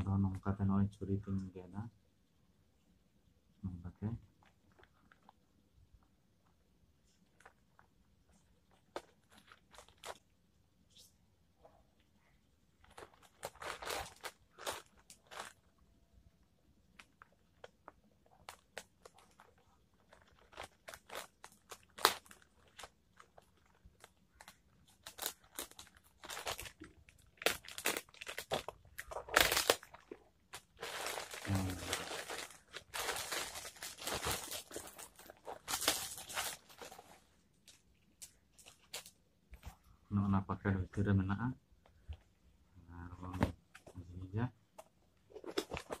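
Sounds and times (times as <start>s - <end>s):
plastic crinkling: 4.4s - 5.5s, 7.0s - 10.3s, 12.2s - 15.8s, 16.8s - 39.2s
plastic mailer bag tearing: 25.0s - 37.0s.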